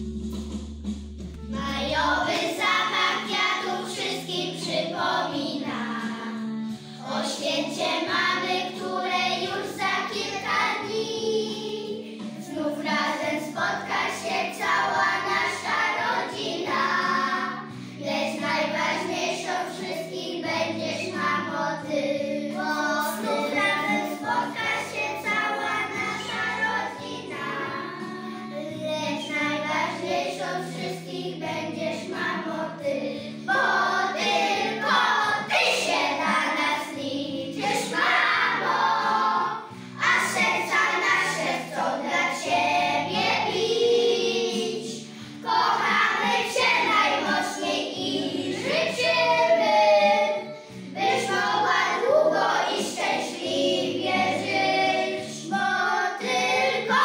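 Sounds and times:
instrumental accompaniment: 0:00.0 - 0:19.3
children singing in unison: 0:01.6 - 0:57.0.

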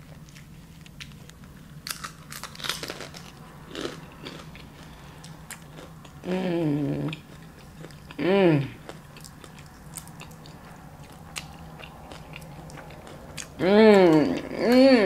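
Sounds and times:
crispy food crunching: 0:00.0 - 0:06.3, 0:06.9 - 0:14.8
person humming mm: 0:06.2 - 0:07.2, 0:08.2 - 0:08.8, 0:13.6 - 0:15.0.

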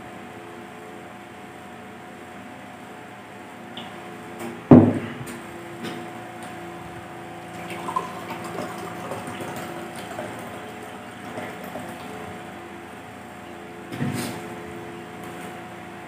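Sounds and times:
steady low hum: 0:00.0 - 0:16.0
water poured into glass: 0:07.6 - 0:10.8.

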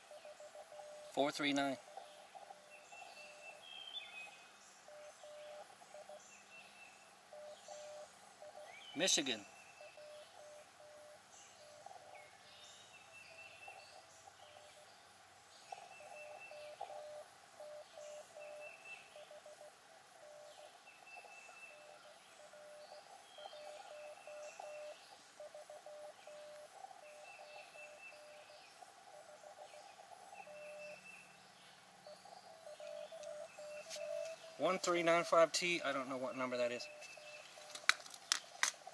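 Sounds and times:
faint morse code tone: 0:04.9 - 0:06.2, 0:07.3 - 0:11.3, 0:15.7 - 0:28.5, 0:32.7 - 0:37.6
high chirping trills: 0:15.6 - 0:37.8.

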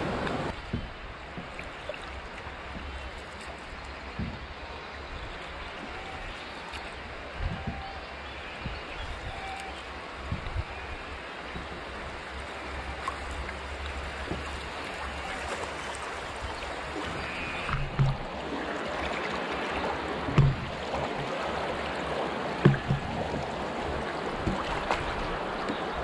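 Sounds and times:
water rushing over rapids: 0:00.0 - 0:26.0
dull knocks: 0:04.2 - 0:04.4, 0:17.7 - 0:18.3, 0:20.3 - 0:20.8, 0:22.6 - 0:23.5.

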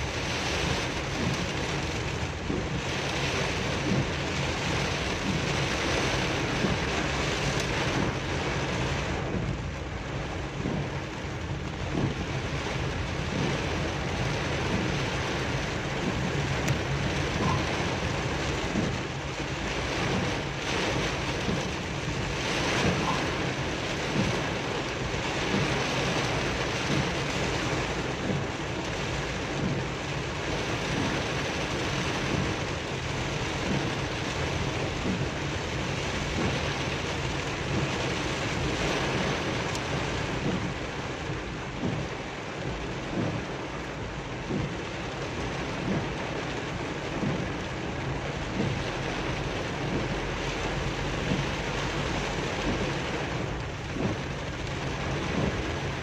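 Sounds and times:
heavy rain on car roof: 0:00.0 - 0:56.0.

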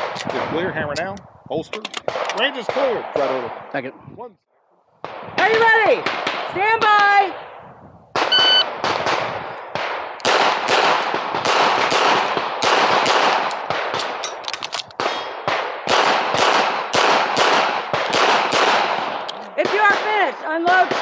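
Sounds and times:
pistol shots: 0:06.0 - 0:06.5, 0:08.2 - 0:21.0
shot timer beep: 0:08.3 - 0:08.7.

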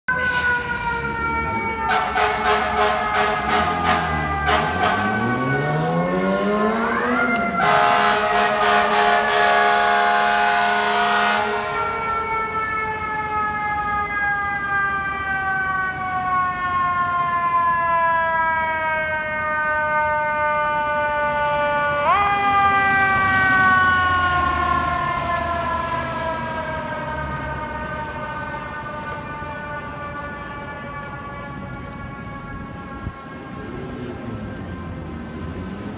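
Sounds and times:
fire truck air horn blasting: 0:00.1 - 0:05.8, 0:06.9 - 0:12.4
fire engine siren: 0:00.1 - 0:35.9.

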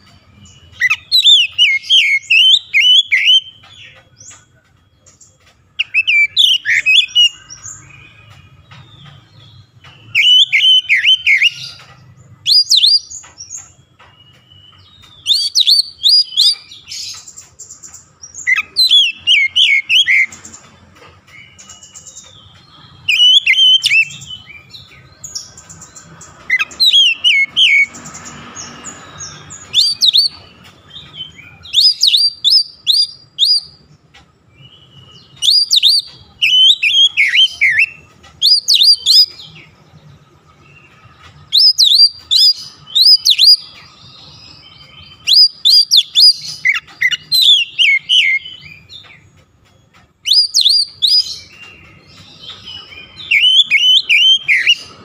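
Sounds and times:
bird singing whistled phrases: 0:00.7 - 0:03.7, 0:10.0 - 0:11.8, 0:14.2 - 0:17.3, 0:18.4 - 0:20.4, 0:23.0 - 0:24.7, 0:29.6 - 0:30.4, 0:31.4 - 0:33.9, 0:34.6 - 0:39.6, 0:41.4 - 0:43.8, 0:44.6 - 0:49.0, 0:50.2 - 0:55.0.

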